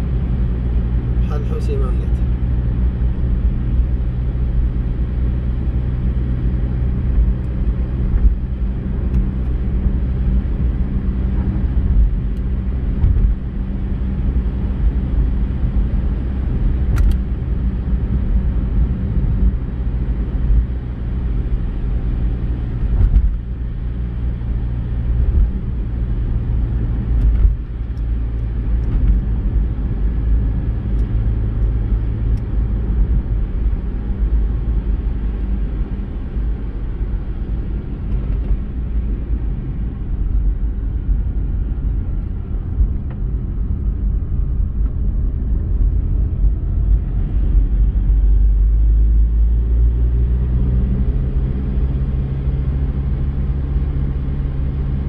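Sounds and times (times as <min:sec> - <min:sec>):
car engine and tyre noise: 0:00.0 - 0:55.0.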